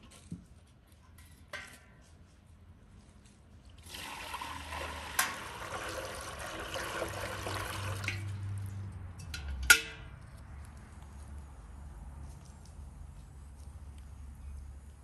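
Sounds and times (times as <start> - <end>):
water pouring into metal pan: 3.8 - 8.4.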